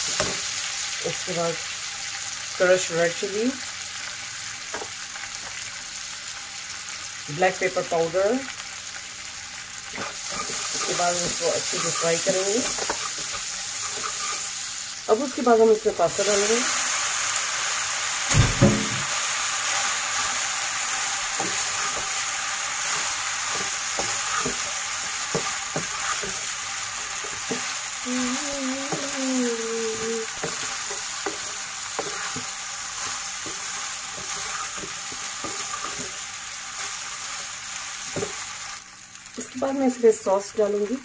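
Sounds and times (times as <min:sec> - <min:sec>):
pasta sizzling in hot oil: 0:00.0 - 0:41.0
heavy thump: 0:18.3 - 0:19.1
wooden spatula scrapes and knocks: 0:22.9 - 0:24.7, 0:30.4 - 0:32.5.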